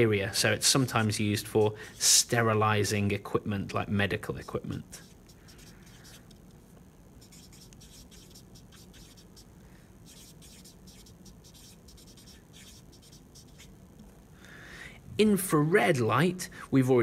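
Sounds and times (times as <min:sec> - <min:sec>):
marker scratching on whiteboard: 0:04.3 - 0:06.4, 0:07.2 - 0:13.7.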